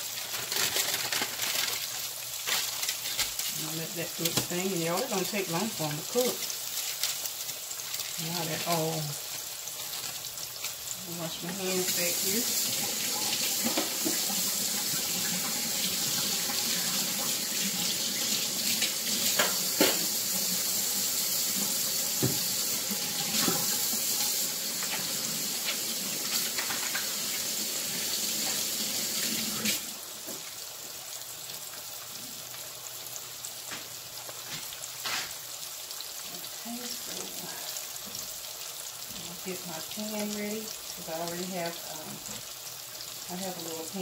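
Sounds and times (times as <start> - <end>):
fish frying in hot oil: 0.0 - 44.0
tap running into sink: 13.5 - 14.4, 19.2 - 20.1, 22.2 - 22.6.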